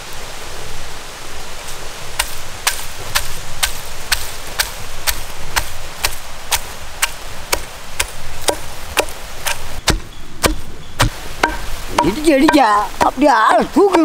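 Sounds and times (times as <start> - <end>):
pestle pounding in stone mortar: 8.5 - 14.0.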